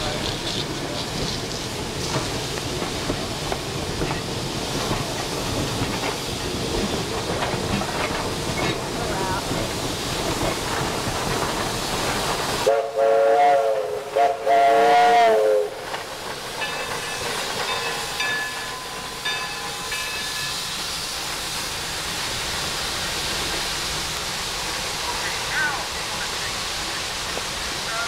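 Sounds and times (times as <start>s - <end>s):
steam hissing: 0.0s - 28.0s
steam whistle blasts: 12.6s - 15.7s.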